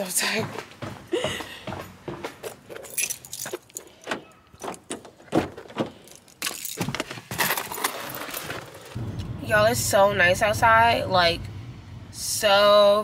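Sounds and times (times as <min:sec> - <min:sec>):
car keys jangling: 0:02.4 - 0:05.0, 0:05.9 - 0:09.0.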